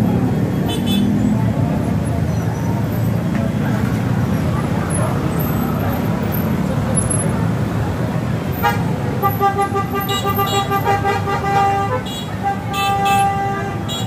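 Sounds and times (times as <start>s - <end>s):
crowd voices: 0.0s - 14.0s
street traffic: 0.0s - 14.0s
vehicle horn: 8.6s - 14.0s.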